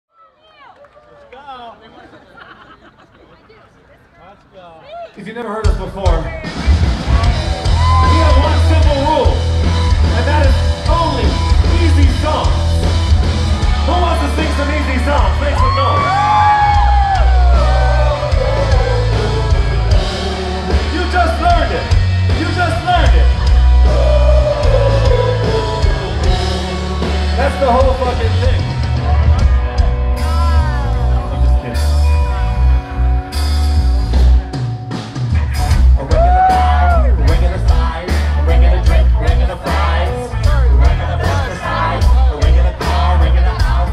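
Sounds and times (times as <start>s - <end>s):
drums: 5.5s - 43.9s
heavy bass line: 6.1s - 43.9s
male singer singing: 16.9s - 21.8s, 22.4s - 28.7s, 36.1s - 43.9s.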